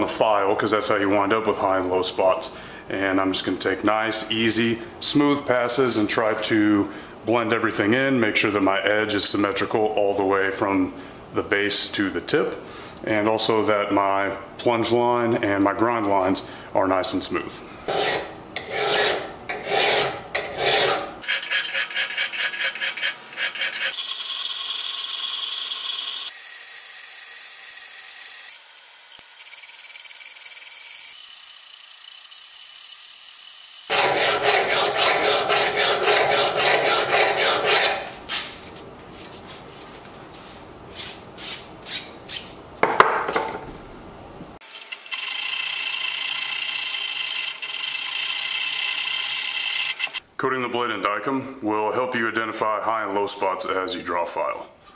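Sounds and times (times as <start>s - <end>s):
file rasping on steel blade: 17.9s - 24.1s, 33.9s - 38.1s.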